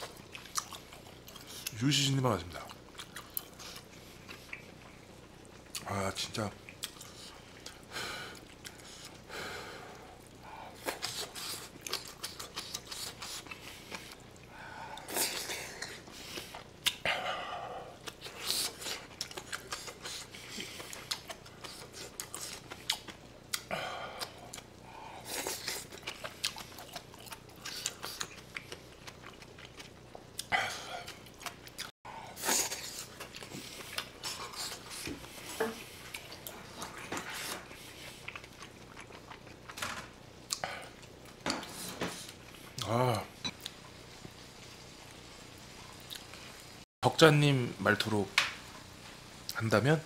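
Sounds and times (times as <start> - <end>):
person chewing and smacking: 0.0 - 1.8, 2.6 - 9.3, 10.2 - 17.2, 17.9 - 39.8, 40.4 - 41.4.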